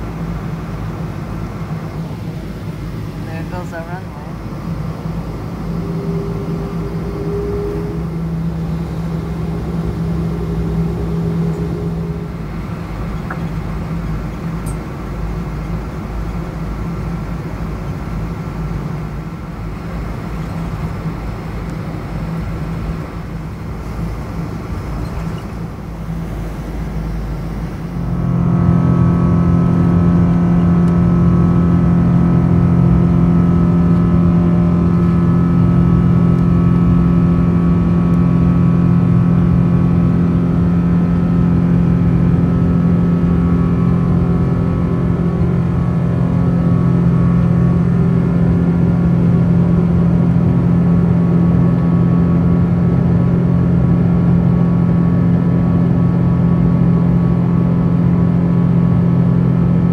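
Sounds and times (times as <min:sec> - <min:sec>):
jet engine hum and drone: 0:00.0 - 0:59.9
jet engine whine: 0:00.0 - 0:59.9.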